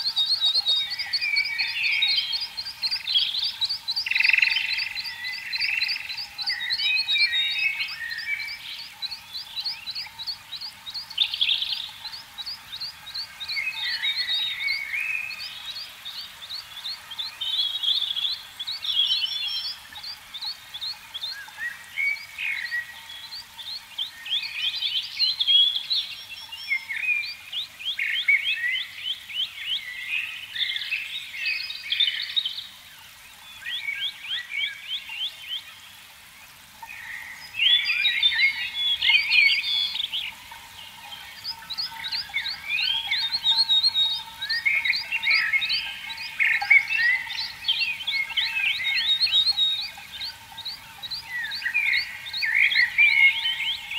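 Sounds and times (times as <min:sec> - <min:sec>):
warbling bird calls: 0:00.0 - 0:53.9
high bird trill: 0:36.8 - 0:53.9.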